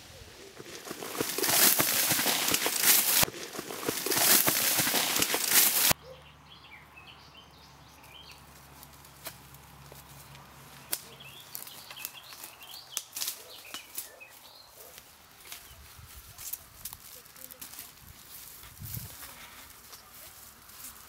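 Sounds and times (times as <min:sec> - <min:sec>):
small birds chirping: 0:00.2 - 0:18.0
faint clicks and snaps: 0:10.9 - 0:11.1.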